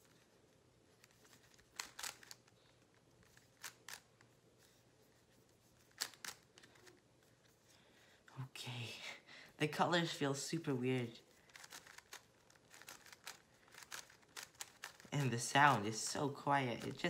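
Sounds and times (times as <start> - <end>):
plastic puzzle cube clicks: 1.1 - 2.6, 3.2 - 4.1, 5.9 - 6.9, 11.5 - 15.2.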